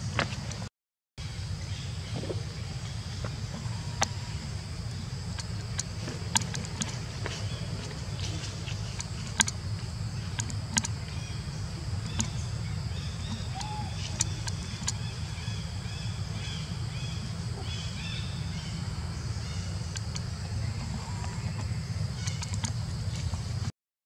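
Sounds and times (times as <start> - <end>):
sharp clicks: 5.3 - 7.1, 8.9 - 9.6, 10.3 - 11.0, 12.0 - 12.4, 13.2 - 15.1, 19.9 - 20.3, 22.2 - 23.3.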